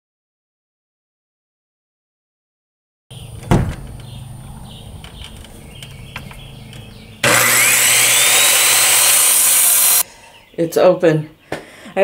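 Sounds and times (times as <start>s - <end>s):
circular saw cutting wood: 7.2s - 10.1s.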